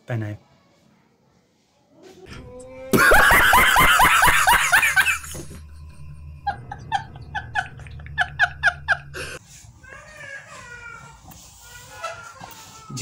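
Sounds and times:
man laughing loudly: 2.9 - 5.6, 6.4 - 9.4.

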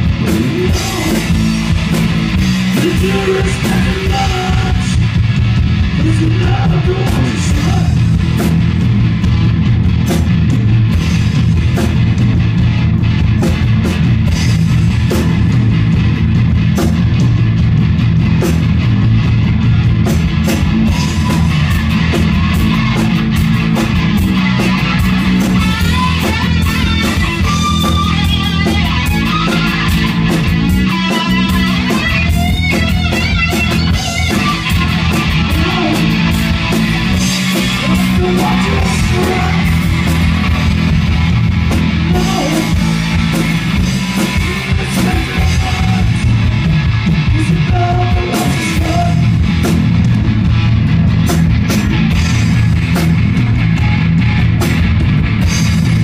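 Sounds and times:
live rock band playing: 0.0 - 56.0
lead guitar bending high notes: 24.8 - 40.6.

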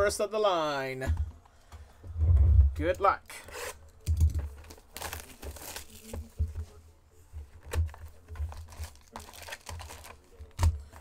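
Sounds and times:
packaging crinkling and tearing: 4.4 - 6.3, 7.6 - 11.0.

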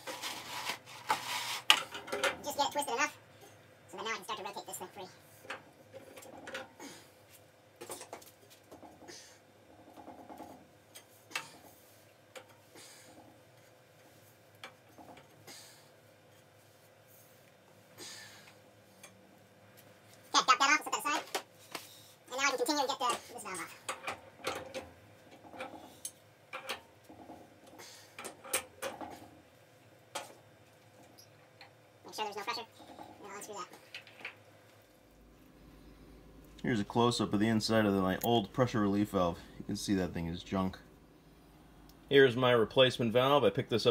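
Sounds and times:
pipe wrench scraping on pipe: 0.0 - 2.3.

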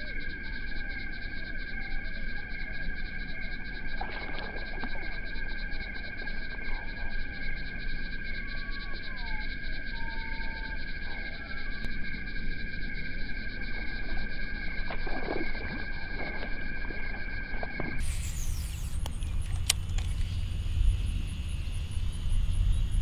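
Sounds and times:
bullfrog calling: 8.2 - 11.9
short whistles: 18.0 - 20.5
high-pitched pulsing drone: 18.0 - 23.0.

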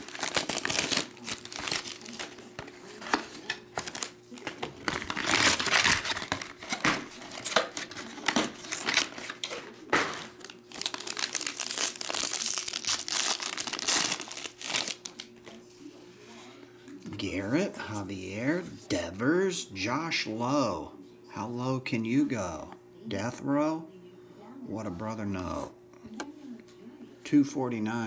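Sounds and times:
foil card pack crinkling: 0.0 - 15.6
plastic shrink wrap crinkling and tearing: 0.0 - 15.6.

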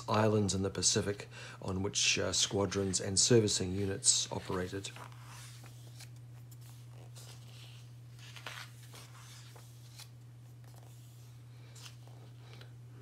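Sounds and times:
steady low hum: 0.0 - 13.0
book pages turning: 3.7 - 12.7
paper rustles: 4.1 - 12.7.

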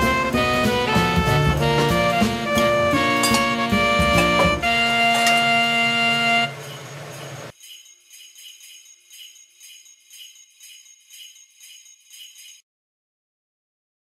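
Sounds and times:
background music: 0.0 - 6.9
jingle bells shaking: 2.6 - 12.6.

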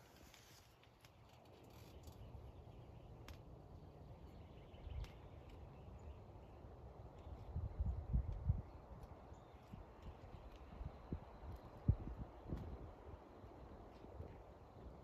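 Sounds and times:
faint sharp clicks: 3.2 - 3.5, 4.9 - 5.7.

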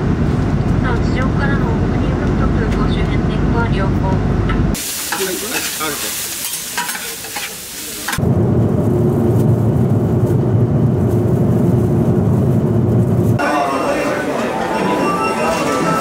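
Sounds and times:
loud low rumble: 0.0 - 4.8, 8.2 - 13.4
food sizzling on a griddle: 4.8 - 8.2.

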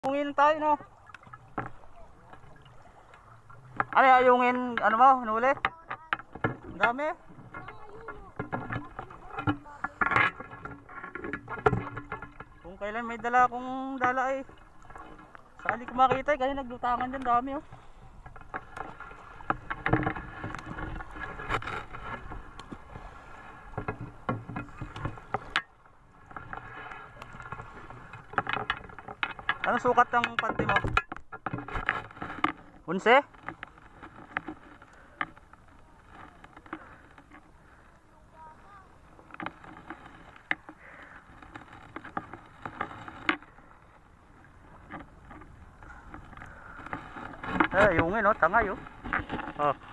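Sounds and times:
water sloshing and splashing: 0.0 - 49.9
knocks and clicks: 26.3 - 32.6.

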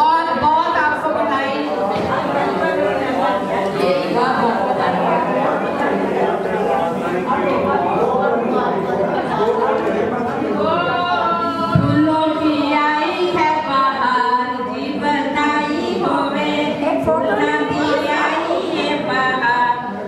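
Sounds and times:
women singing unaccompanied: 10.6 - 20.0.

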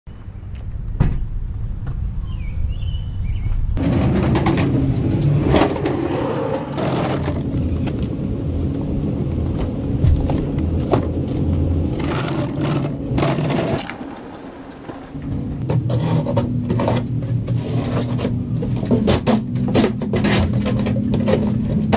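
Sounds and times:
faint bird chirping: 2.2 - 3.8
wooden table scraping and rumbling: 3.8 - 21.9.

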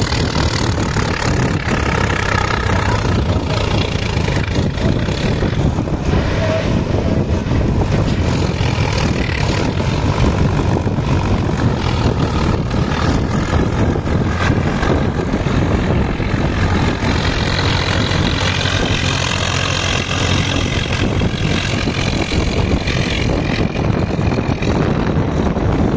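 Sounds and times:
tractor diesel engine running: 0.0 - 25.9.

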